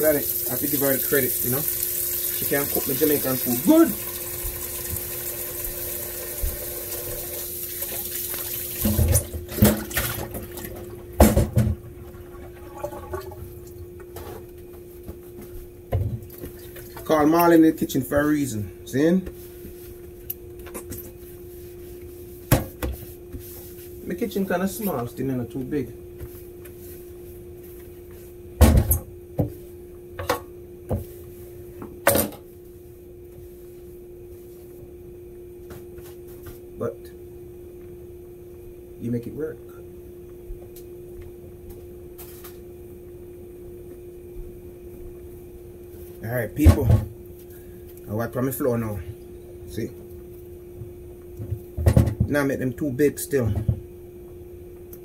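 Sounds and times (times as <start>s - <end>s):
kitchen tap running: 0.0s - 10.8s
steady hum: 0.0s - 55.0s.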